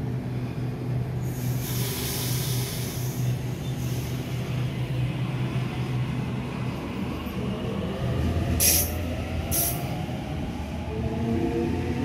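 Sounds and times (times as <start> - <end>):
electric train hum: 0.0 - 12.0
brake air hiss: 1.2 - 4.4, 8.6 - 9.9.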